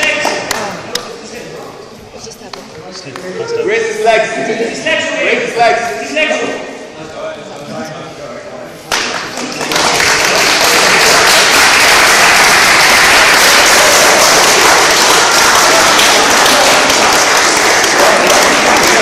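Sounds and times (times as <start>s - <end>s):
crowd applauding: 8.9s - 19.0s.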